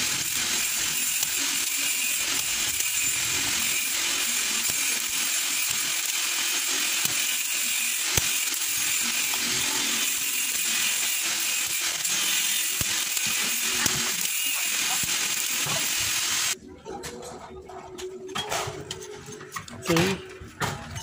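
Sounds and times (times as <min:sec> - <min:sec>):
desoldering pump clicking: 0:10.2 - 0:16.5.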